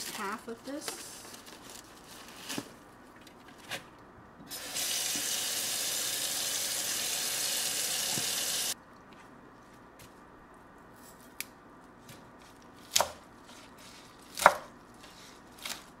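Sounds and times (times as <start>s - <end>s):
faucet water rushing into sink: 4.5s - 8.8s.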